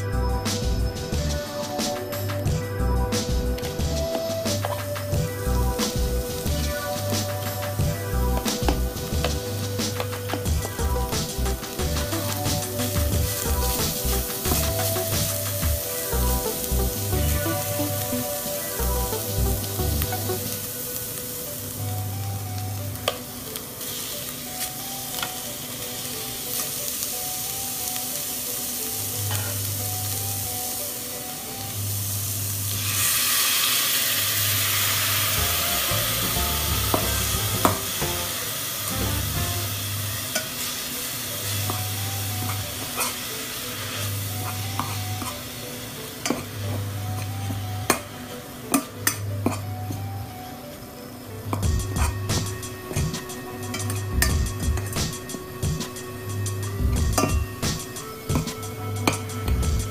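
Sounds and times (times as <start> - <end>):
paste frying in oil: 3.2 - 22.0, 22.8 - 49.7.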